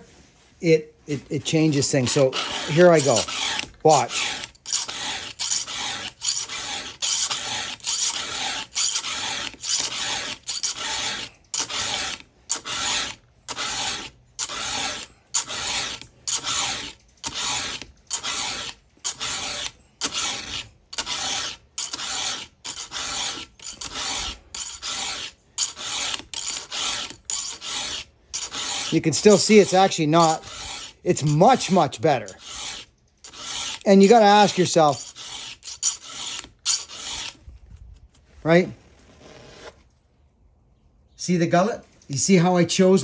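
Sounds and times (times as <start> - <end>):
file rasping on saw chain: 1.4 - 37.4.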